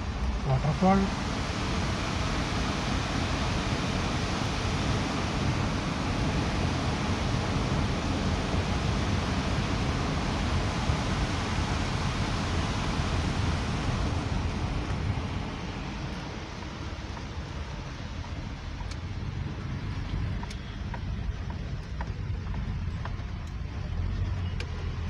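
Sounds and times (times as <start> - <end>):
waterfall roaring: 0.0 - 18.6.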